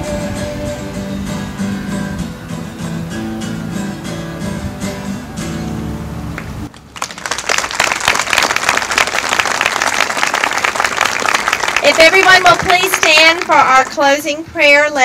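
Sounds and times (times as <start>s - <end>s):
acoustic guitar: 0.0s - 6.9s
audience applauding: 6.7s - 13.7s.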